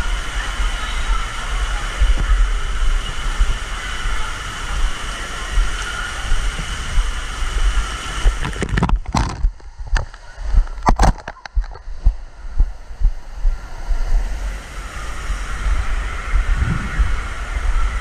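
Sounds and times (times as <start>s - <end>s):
water spraying and splashing: 0.0s - 9.6s.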